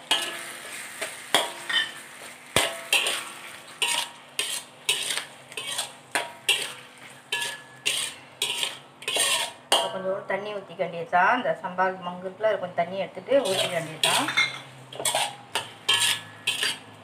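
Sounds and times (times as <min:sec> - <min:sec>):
metal clink on pan: 0:00.0 - 0:00.6, 0:01.3 - 0:02.0, 0:02.6 - 0:04.1, 0:04.9 - 0:10.0, 0:13.4 - 0:16.9
spatula scraping in metal wok: 0:00.0 - 0:10.0, 0:13.4 - 0:17.0.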